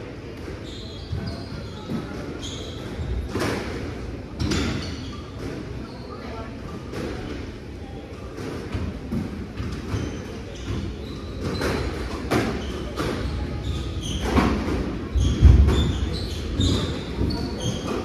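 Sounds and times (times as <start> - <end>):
shoes squeaking on wooden floor: 9.8 - 18.0.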